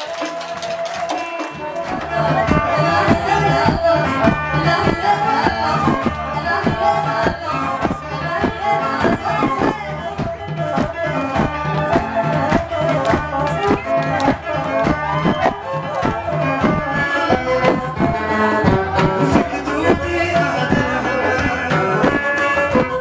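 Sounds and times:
bamboo flute melody: 0:00.0 - 0:23.0
steady drum beat: 0:00.0 - 0:23.0.

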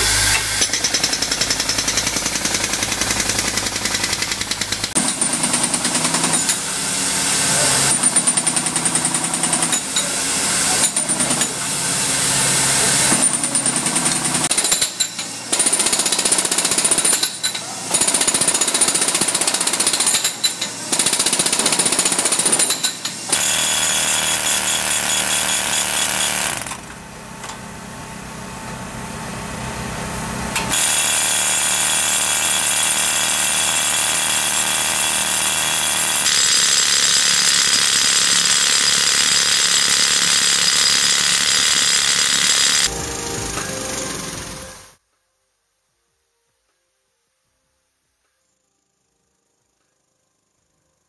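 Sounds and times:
pneumatic hammers on concrete: 0:00.0 - 0:06.7, 0:07.8 - 0:11.6, 0:12.8 - 0:27.0, 0:30.6 - 0:42.9.

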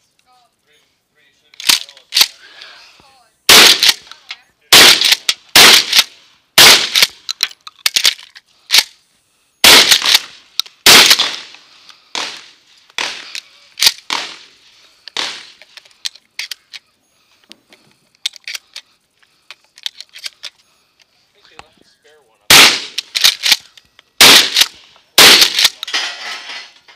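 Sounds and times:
shotgun handling clicks and rattles: 0:01.5 - 0:02.4, 0:03.5 - 0:09.0, 0:09.7 - 0:12.3, 0:12.9 - 0:14.3, 0:15.0 - 0:21.7, 0:22.5 - 0:26.9
shotgun blasts echoing: 0:03.5 - 0:04.1, 0:04.7 - 0:07.2, 0:09.6 - 0:11.5, 0:12.1 - 0:13.4, 0:14.0 - 0:14.6, 0:15.2 - 0:15.6, 0:22.5 - 0:23.5, 0:24.2 - 0:26.1.

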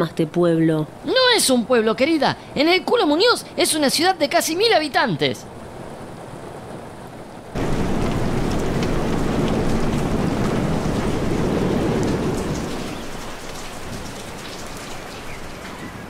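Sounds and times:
heavy rain pouring: 0:05.7 - 0:16.0.

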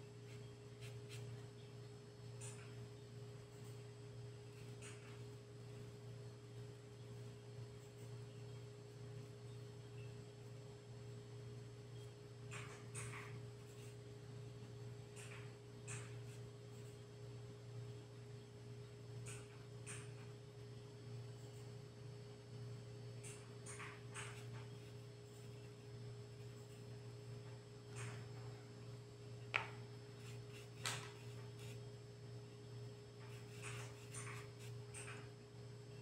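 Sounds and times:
steady low hum: 0:00.0 - 0:36.0.

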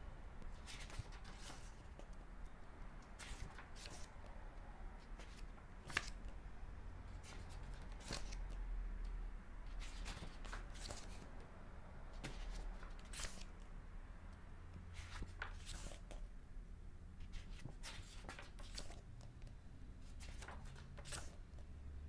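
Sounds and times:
book pages turning: 0:00.4 - 0:02.2, 0:03.1 - 0:04.1, 0:05.0 - 0:06.4, 0:07.1 - 0:08.5, 0:09.7 - 0:11.3, 0:12.2 - 0:13.6, 0:14.9 - 0:16.2, 0:17.2 - 0:19.2, 0:20.0 - 0:21.6.

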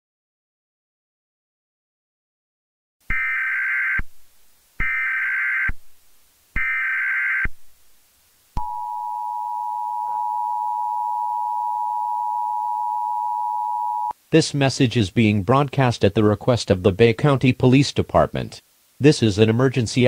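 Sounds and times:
two-tone attention signal: 0:08.6 - 0:14.1.

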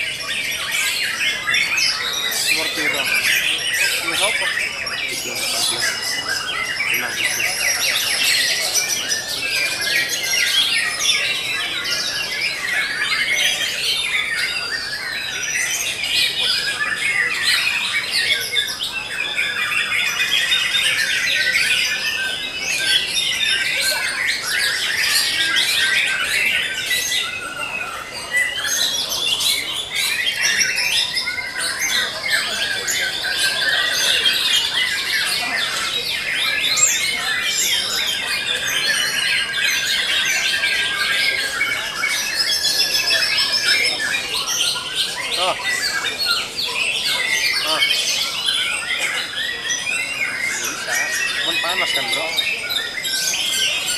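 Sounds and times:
songbirds singing: 0:00.0 - 0:53.9.

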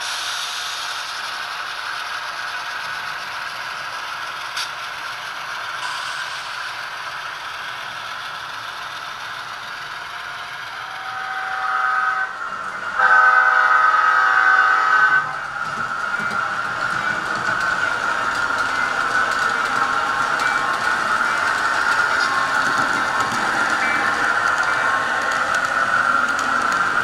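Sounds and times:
model locomotive horn: 0:10.8 - 0:12.4, 0:13.0 - 0:15.4
model train wheels rattling: 0:15.3 - 0:27.0.

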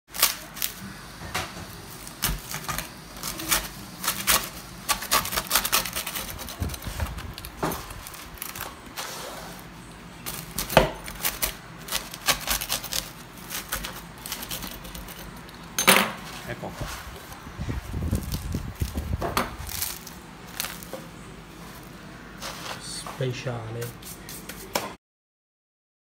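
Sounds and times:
pizza crust crackling and crunching: 0:00.1 - 0:24.8
pizza cutter wheel on wooden board: 0:02.3 - 0:09.7, 0:10.3 - 0:15.8.

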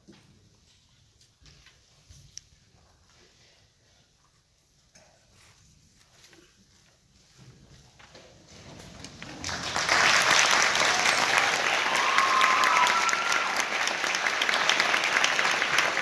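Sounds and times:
audience applauding: 0:09.2 - 0:16.0.

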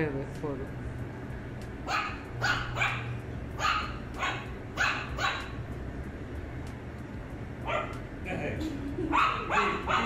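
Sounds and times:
puppy yapping barks: 0:01.8 - 0:05.6, 0:07.6 - 0:08.0, 0:09.1 - 0:10.0.

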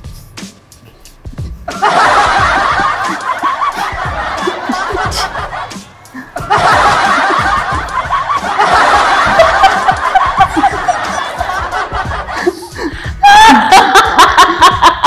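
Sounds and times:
crowd laughing and shouting: 0:01.7 - 0:15.0
person laughing and calling out: 0:12.3 - 0:15.0.

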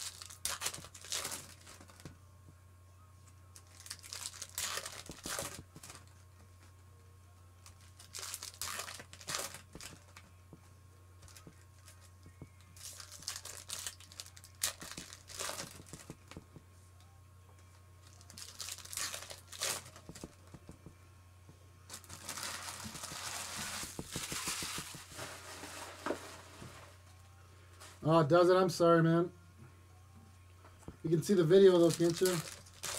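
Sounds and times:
foil wrappers crinkling and tearing: 0:00.0 - 0:02.1, 0:03.5 - 0:06.2, 0:07.6 - 0:10.3, 0:11.2 - 0:12.1, 0:12.7 - 0:16.4, 0:18.0 - 0:20.6, 0:21.9 - 0:26.9, 0:31.1 - 0:32.9
steady low hum: 0:00.0 - 0:32.9.

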